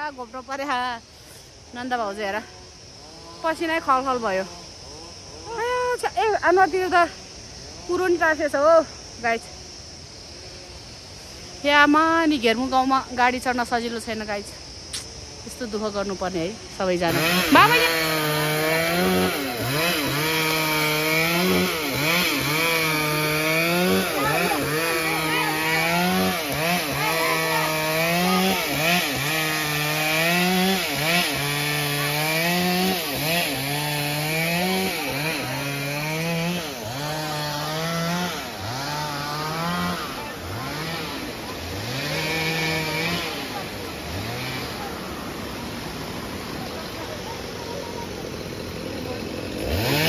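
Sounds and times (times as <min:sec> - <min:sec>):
chainsaw cutting a log: 0:17.0 - 0:50.0.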